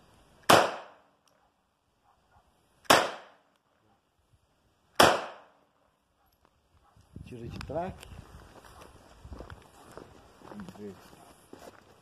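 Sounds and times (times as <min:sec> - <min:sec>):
pistol shots with echo: 0:00.4 - 0:01.1, 0:02.8 - 0:03.4, 0:05.0 - 0:05.6.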